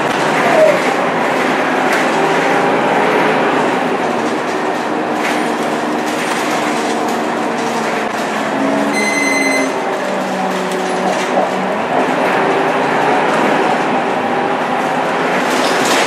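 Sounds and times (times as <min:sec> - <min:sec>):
bus engine droning: 0:00.0 - 0:16.0
high electronic beep: 0:09.0 - 0:09.8.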